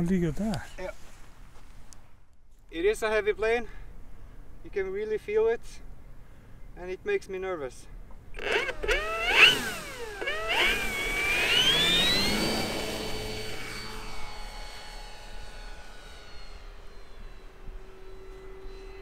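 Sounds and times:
model airplane motor whining: 0:08.3 - 0:19.0.

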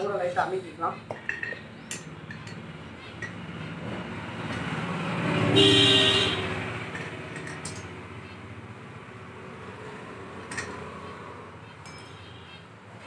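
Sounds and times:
motor vehicle passing by: 0:02.6 - 0:13.0.

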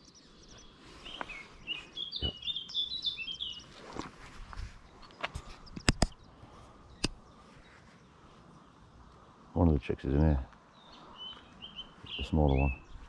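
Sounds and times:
sharp clicks: 0:05.2 - 0:06.3, 0:07.0 - 0:07.2.

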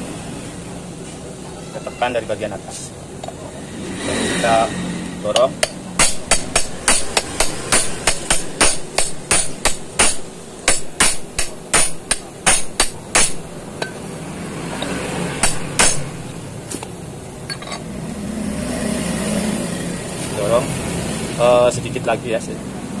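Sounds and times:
hammer striking metal: 0:05.3 - 0:14.0, 0:14.8 - 0:16.4.

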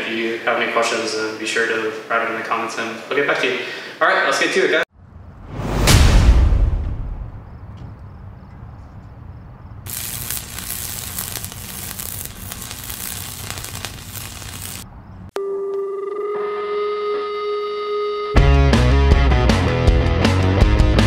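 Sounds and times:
low rumble: 0:04.9 - 0:08.2
electric buzz of held tones: 0:09.9 - 0:14.8
electric spark crackle: 0:09.9 - 0:14.9.

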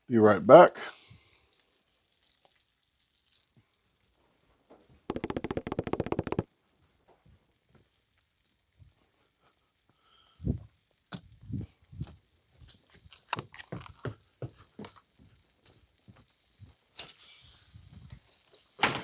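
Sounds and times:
sandwich sizzling in a pan: 0:01.0 - 0:05.7, 0:06.6 - 0:19.0
rapid rattle of clicks: 0:05.1 - 0:06.4.

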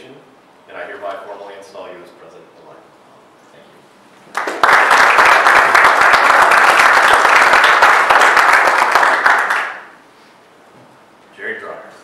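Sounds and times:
audience applauding: 0:04.3 - 0:10.0.

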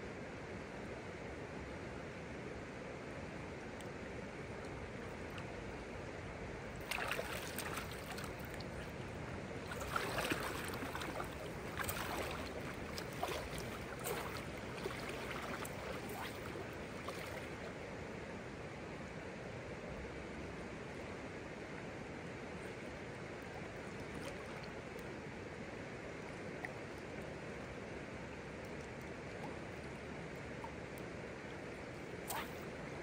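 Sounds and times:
stream rushing: 0:04.8 - 0:17.9
wading splashes in water: 0:06.7 - 0:17.8, 0:23.6 - 0:25.0.

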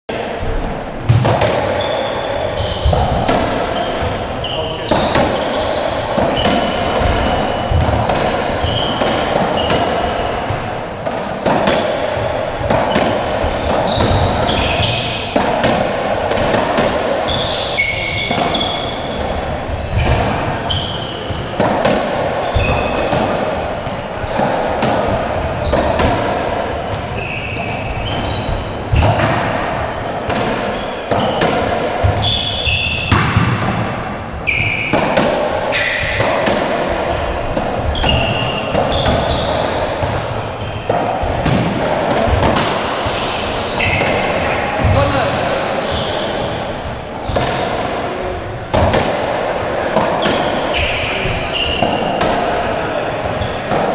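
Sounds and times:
rubber ball hit by rackets: 0:00.6 - 0:02.0, 0:02.6 - 0:04.2, 0:04.8 - 0:45.3, 0:46.2 - 0:47.9, 0:48.7 - 0:52.6
shoes squeaking on wooden floor: 0:01.8 - 0:11.4, 0:13.4 - 0:15.4, 0:17.3 - 0:21.2, 0:27.1 - 0:29.2, 0:32.1 - 0:33.2, 0:34.4 - 0:35.1, 0:37.9 - 0:39.9, 0:43.0 - 0:46.6, 0:47.2 - 0:48.3, 0:50.4 - 0:52.0.

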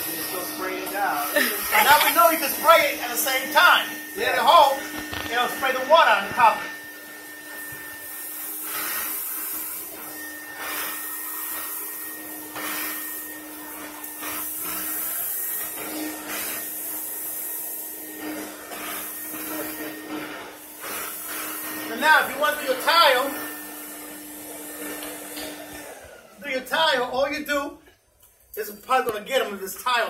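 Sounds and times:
rush of air suction: 0:00.0 - 0:22.0
vacuum motor whine: 0:00.0 - 0:26.4.

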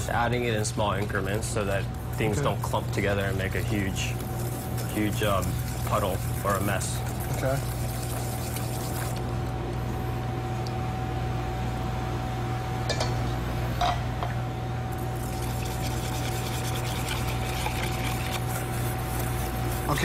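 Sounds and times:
steady low hum: 0:00.0 - 0:20.0
milk pouring: 0:04.4 - 0:09.3, 0:15.0 - 0:20.0.

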